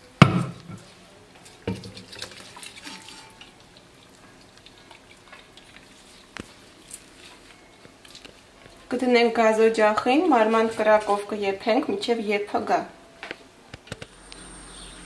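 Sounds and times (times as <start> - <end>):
small clicks and wet sounds: 1.3 - 9.0
water dripping and splashing: 1.4 - 8.9.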